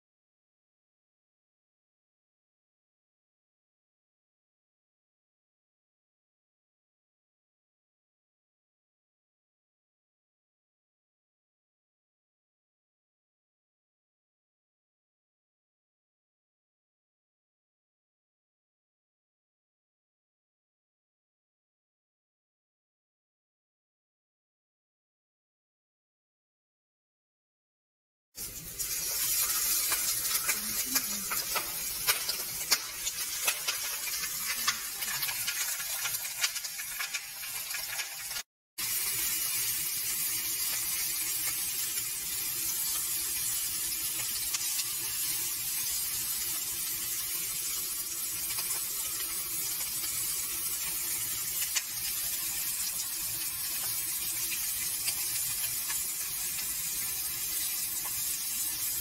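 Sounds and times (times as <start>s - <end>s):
fish frying in oil: 28.4s - 59.0s
crackling pops: 29.9s - 38.4s.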